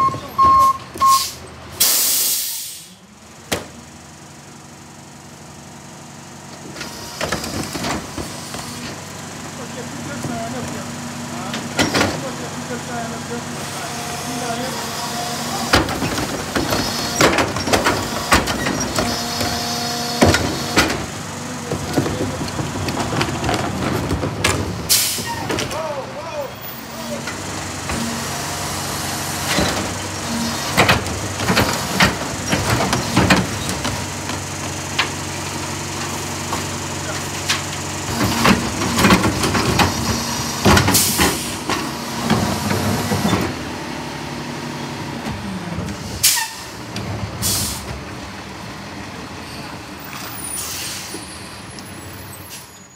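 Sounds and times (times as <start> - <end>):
garbage truck running: 0.0 - 52.9
air brake hisses: 1.0 - 3.0, 24.9 - 25.4, 40.9 - 41.6, 46.2 - 46.7, 47.4 - 47.9, 50.4 - 51.3
hydraulic tipper whining: 4.6 - 52.9
trash and plastic cart clattering: 15.6 - 25.8, 29.4 - 36.8, 37.4 - 43.6
trash falling in: 21.8 - 25.8.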